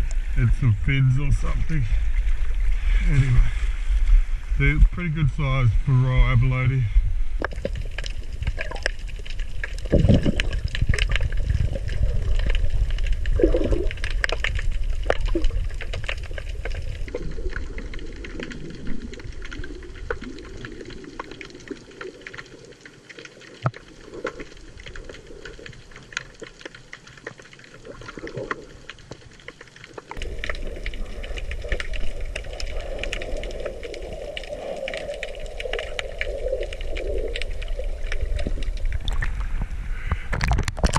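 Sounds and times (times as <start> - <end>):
muffled underwater water rushing: 0.0 - 40.9
sharp clicks and crackles: 7.4 - 40.9.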